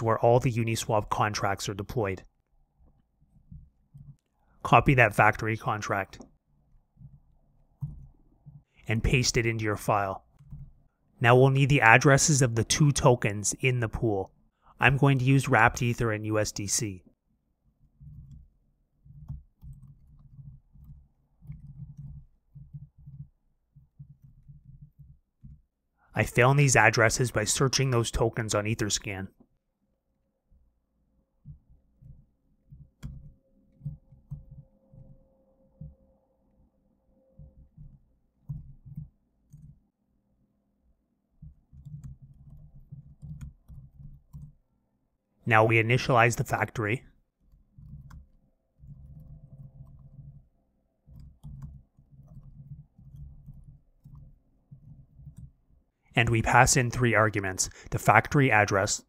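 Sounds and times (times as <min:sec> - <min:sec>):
computer keyboard typing: 0:17.9 - 0:25.7, 0:31.4 - 0:35.2, 0:37.4 - 0:39.9, 0:41.3 - 0:44.6, 0:47.3 - 0:55.8.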